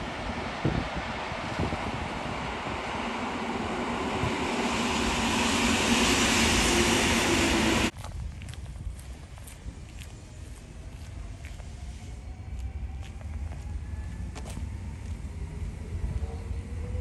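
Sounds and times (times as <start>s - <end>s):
passing vehicle rushing: 0.6s - 7.9s.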